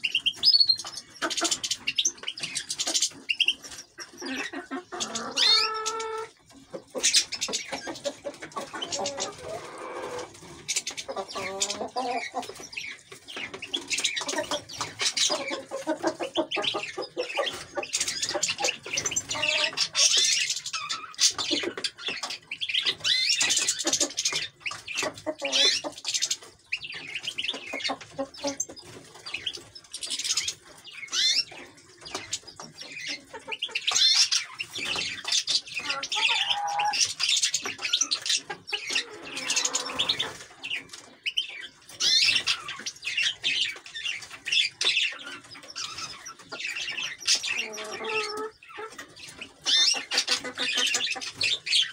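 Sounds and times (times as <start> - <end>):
lower-pitched bird calls: 0.0 - 6.3
finches chirping and twittering: 0.0 - 51.9.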